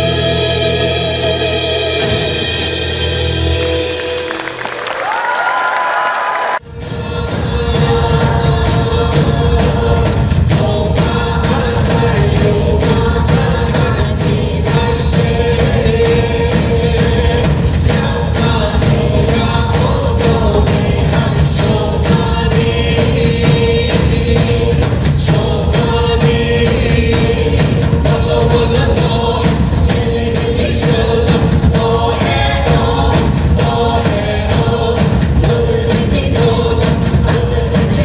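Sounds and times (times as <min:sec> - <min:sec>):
group singing folk song: 0:00.0 - 0:04.5, 0:06.6 - 0:38.0.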